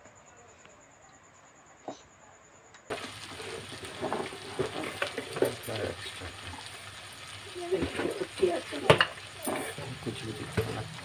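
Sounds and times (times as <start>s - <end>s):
frying sizzle: 2.9s - 11.0s
spatula scraping pan: 7.7s - 10.8s.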